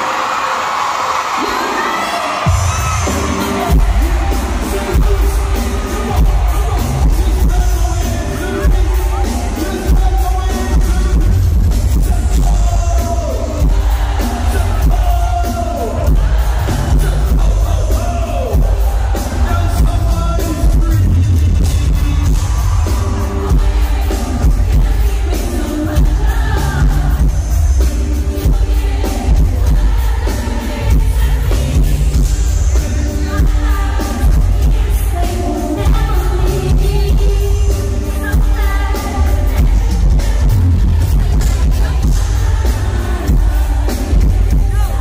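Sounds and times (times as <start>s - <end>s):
backing track with heavy bass beat: 2.4s - 45.0s
woman singing: 32.8s - 45.0s.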